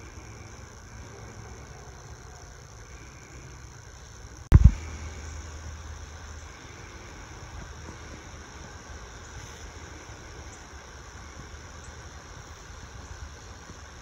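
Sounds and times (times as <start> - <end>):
steady low hum: 0.0 - 14.0
loud thump: 4.5 - 4.8.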